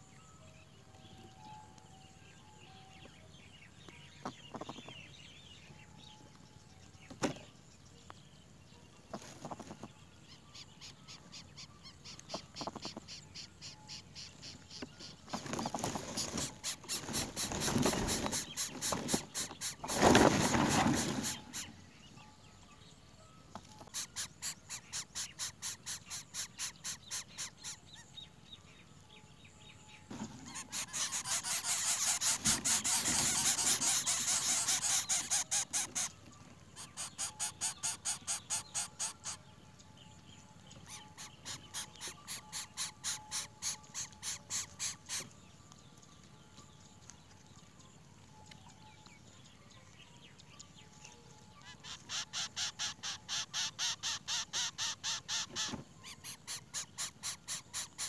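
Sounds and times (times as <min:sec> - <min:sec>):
nestlings begging calls: 0:09.1 - 0:21.9, 0:23.6 - 0:28.1, 0:30.1 - 0:39.6, 0:40.7 - 0:45.4, 0:51.6 - 0:58.0.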